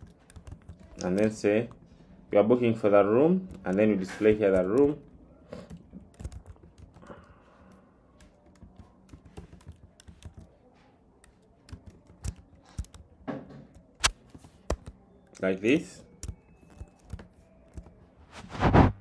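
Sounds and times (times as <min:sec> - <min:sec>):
typing on computer keyboard: 0:00.0 - 0:01.9, 0:03.3 - 0:18.0.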